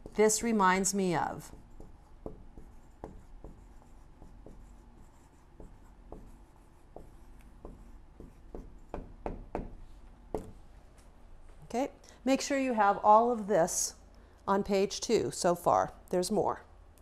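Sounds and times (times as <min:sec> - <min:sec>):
marker tapping whiteboard: 0:01.4 - 0:10.6
marker writing on whiteboard: 0:01.4 - 0:10.6.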